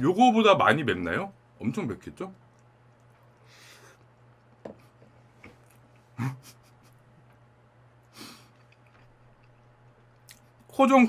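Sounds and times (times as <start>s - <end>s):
hissing breath: 8.1s - 8.6s
man sniffling: 8.1s - 8.6s.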